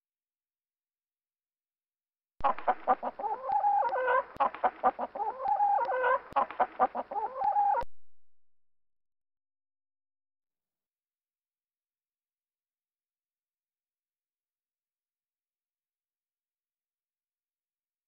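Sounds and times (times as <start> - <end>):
hen clucking: 2.4 - 7.8.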